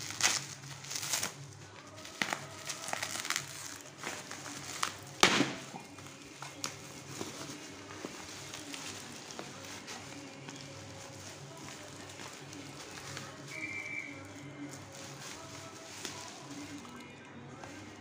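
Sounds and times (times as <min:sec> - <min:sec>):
bubble wrap crinkling: 0:00.0 - 0:18.0.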